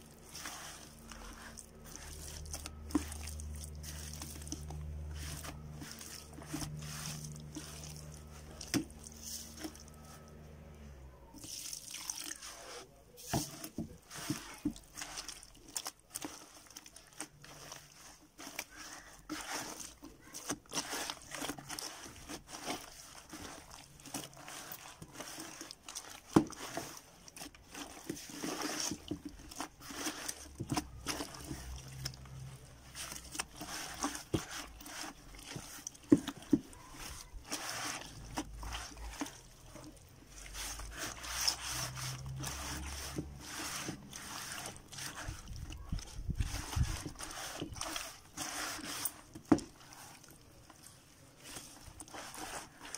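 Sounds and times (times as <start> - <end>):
wet cement squelching in bucket: 0.0 - 52.9.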